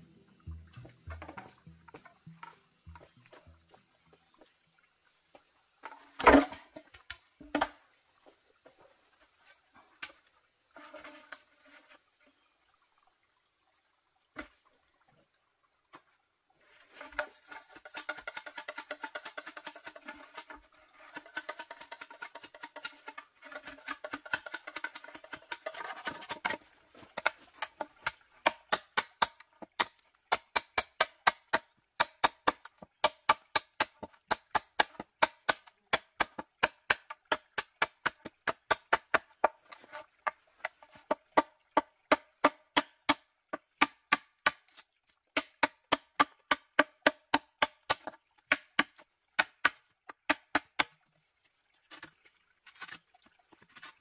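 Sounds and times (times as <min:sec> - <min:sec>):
knife chopping bamboo: 0:28.4 - 0:39.6.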